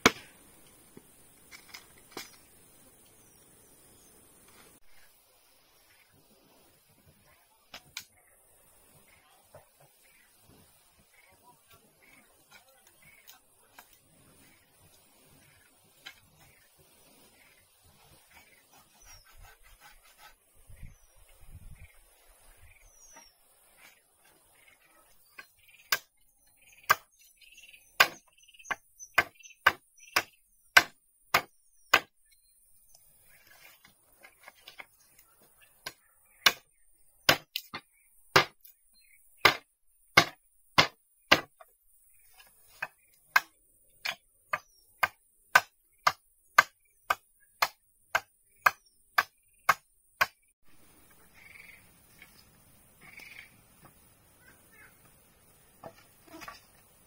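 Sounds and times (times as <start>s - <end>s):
wood being chopped: 0.0s - 0.3s, 26.9s - 27.1s, 28.0s - 32.1s, 35.8s - 36.6s, 37.3s - 38.7s, 39.4s - 41.6s, 42.8s - 50.4s.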